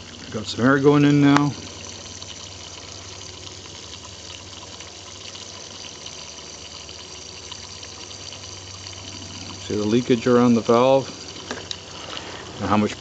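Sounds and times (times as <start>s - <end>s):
air fizzing and bubbling: 0.0s - 13.0s.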